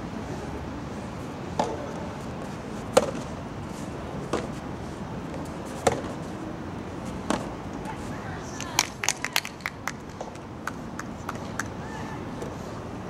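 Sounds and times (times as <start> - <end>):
tennis ball knocks: 2.9 - 3.2, 7.2 - 7.5.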